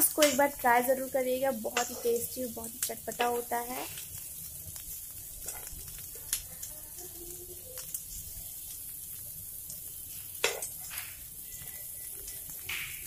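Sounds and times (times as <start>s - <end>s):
potatoes sizzling in oil: 0.0s - 13.0s
spoon scraping and tapping pan: 1.7s - 2.3s, 10.4s - 11.3s.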